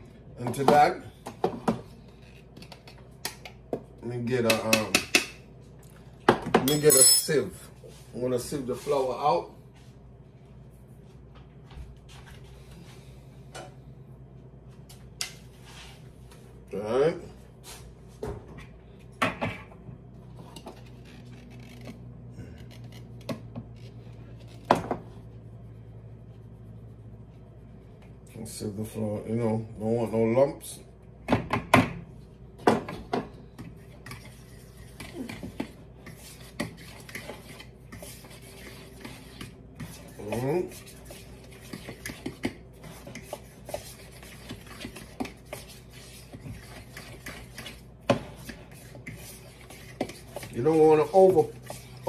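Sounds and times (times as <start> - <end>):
low steady hum: 0.0 - 52.0.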